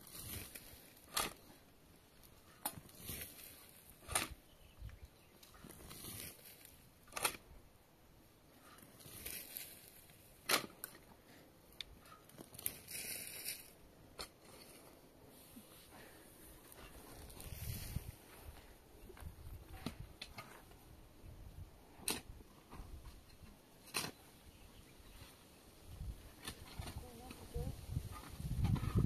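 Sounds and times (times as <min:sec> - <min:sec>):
shovel blade crunching into soil: 0:02.6 - 0:04.4, 0:05.5 - 0:07.4.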